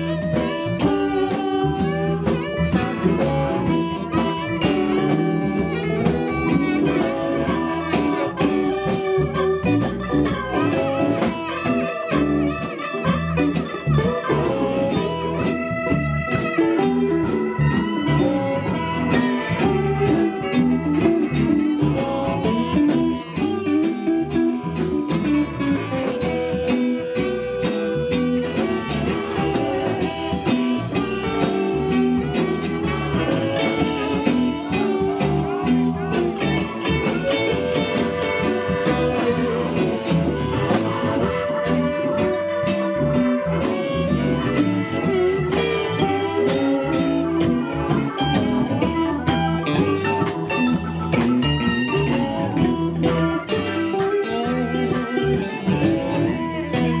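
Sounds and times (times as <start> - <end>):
blues band playing: 0.0 - 57.0
harmonica: 0.0 - 57.0.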